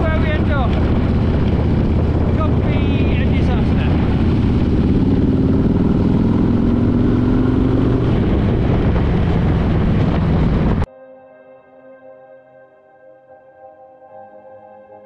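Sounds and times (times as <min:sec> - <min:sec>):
motorcycle engine running: 0:00.0 - 0:10.9
wind and road noise: 0:00.0 - 0:10.9
quiet ambient music: 0:10.8 - 0:15.0.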